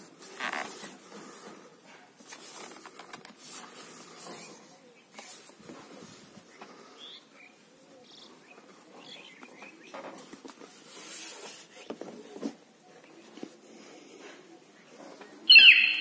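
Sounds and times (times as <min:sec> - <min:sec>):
rustling of thin plastic sheet: 0:00.0 - 0:06.9, 0:08.3 - 0:13.6.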